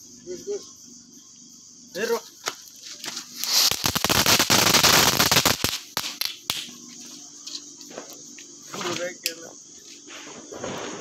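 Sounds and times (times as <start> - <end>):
firework rushing hiss with crackle: 2.0 - 11.0
sharp firework cracks: 2.5 - 6.8.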